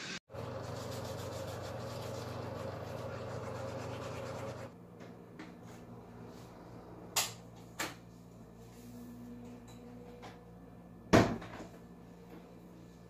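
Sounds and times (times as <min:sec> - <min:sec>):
toothbrush scrubbing teeth: 0:00.6 - 0:04.7.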